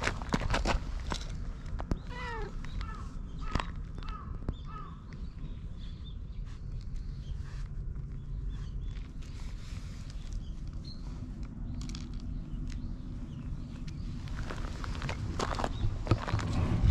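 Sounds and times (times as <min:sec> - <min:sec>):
cat meowing: 0:02.1 - 0:02.6.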